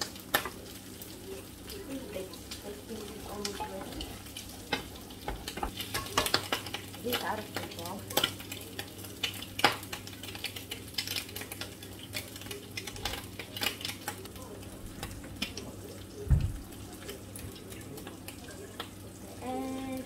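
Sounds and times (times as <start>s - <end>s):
rice sizzling in a pan: 0.0s - 20.0s
utensil clicking on pan: 2.3s - 14.4s.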